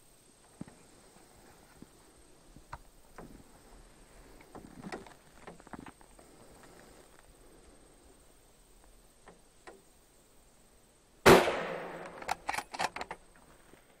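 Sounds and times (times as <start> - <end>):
sharp clicks and knocks: 4.4 - 6.1, 12.0 - 13.5
rifle shot: 11.2 - 12.9.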